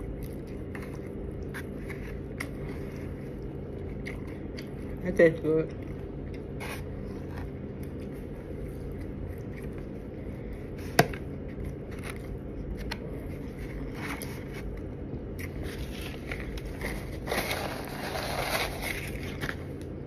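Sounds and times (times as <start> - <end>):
chewing food: 0.0 - 5.0
low room hum: 0.0 - 20.0.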